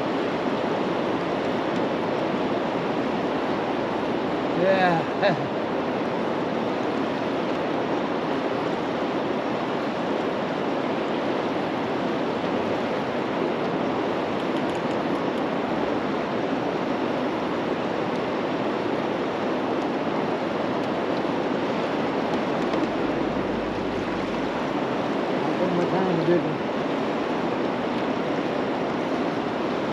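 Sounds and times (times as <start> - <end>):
river water rushing: 0.0 - 29.9
low rumble: 22.3 - 26.1.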